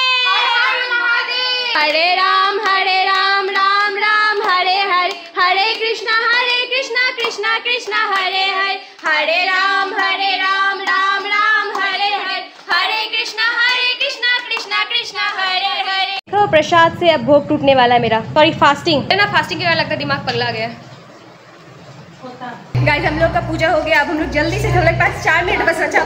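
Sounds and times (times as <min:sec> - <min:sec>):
women singing a hymn: 0:00.2 - 0:16.2
hand clapping: 0:01.8 - 0:15.2.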